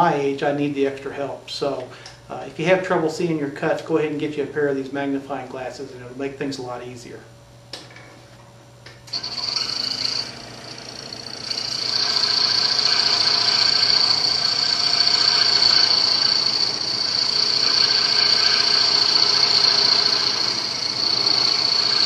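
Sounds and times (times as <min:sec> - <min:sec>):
scroll saw cutting metal: 0:09.1 - 0:22.0.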